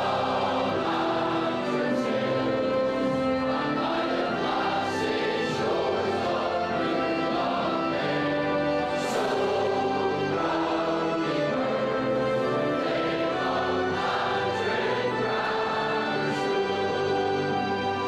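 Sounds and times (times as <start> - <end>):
boys choir singing: 0.0 - 18.0.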